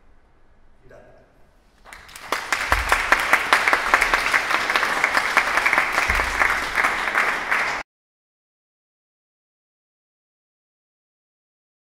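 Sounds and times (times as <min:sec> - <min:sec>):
audience applauding: 0:01.8 - 0:07.8.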